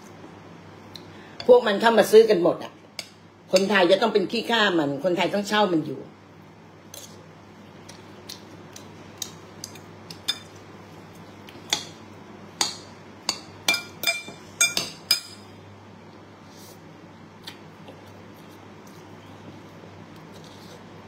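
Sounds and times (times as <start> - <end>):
cutlery clinking on ceramic bowl: 12.6 - 15.4.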